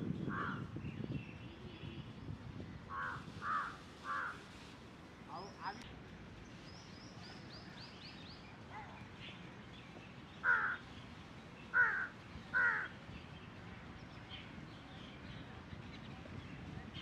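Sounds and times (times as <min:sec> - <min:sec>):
crow cawing harshly: 0:02.9 - 0:04.4, 0:10.4 - 0:10.8, 0:11.8 - 0:12.9.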